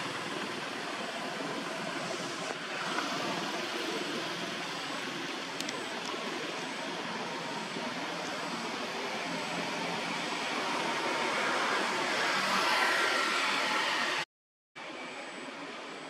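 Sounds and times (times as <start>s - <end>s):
rushing outdoor background noise: 0.0s - 14.2s.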